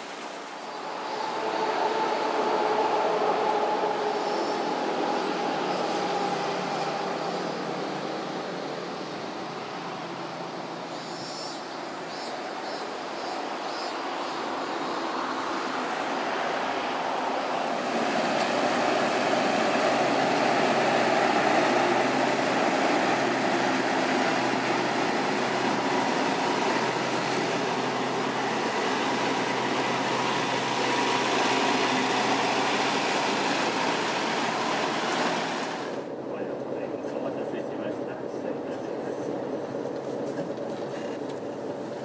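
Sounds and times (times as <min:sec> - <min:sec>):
bus engine running: 0:00.7 - 0:11.2, 0:14.4 - 0:42.0.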